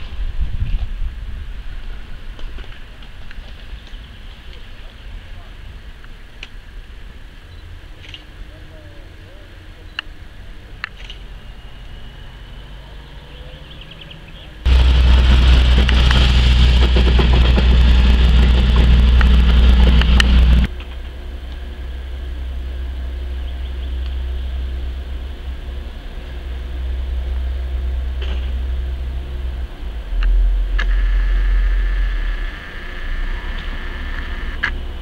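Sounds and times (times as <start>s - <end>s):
diesel locomotive engine running: 14.6s - 35.0s
loud rumble with hiss: 14.6s - 35.0s.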